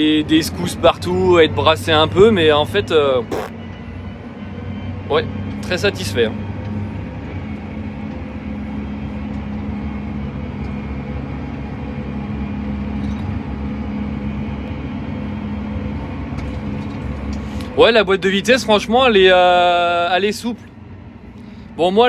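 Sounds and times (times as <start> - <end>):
tractor engine drone from cab: 0.0 - 22.0.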